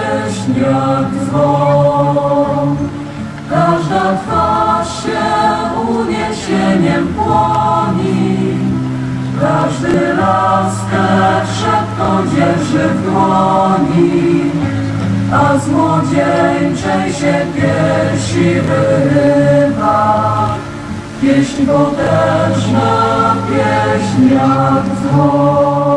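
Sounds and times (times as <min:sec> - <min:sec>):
choir singing in parts: 0:00.0 - 0:25.9.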